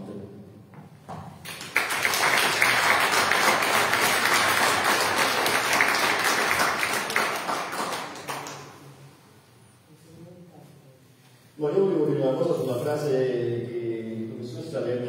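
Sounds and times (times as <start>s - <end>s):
applause: 1.4s - 8.8s.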